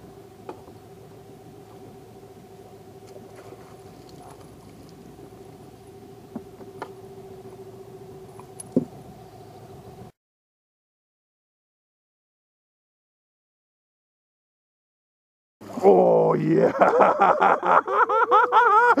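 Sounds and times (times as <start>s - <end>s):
steady hum: 0.0s - 10.2s.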